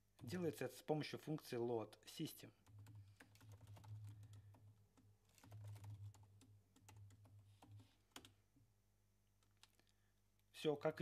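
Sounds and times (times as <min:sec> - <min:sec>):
typing on computer keyboard: 0:02.6 - 0:08.4.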